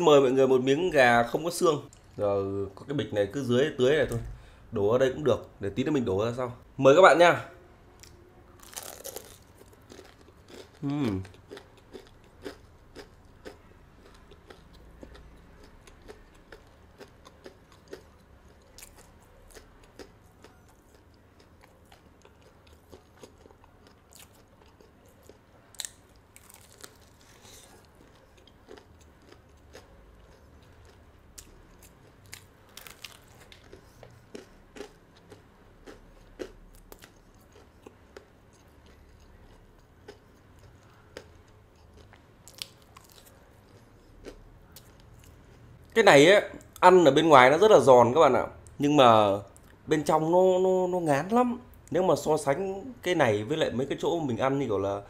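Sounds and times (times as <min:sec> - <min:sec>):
person chewing crunchy food: 0:08.0 - 0:46.0.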